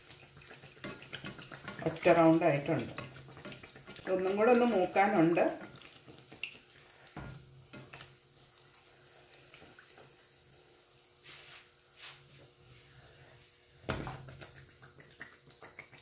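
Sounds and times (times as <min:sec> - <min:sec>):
food sizzling in hot oil: 0:00.0 - 0:16.0.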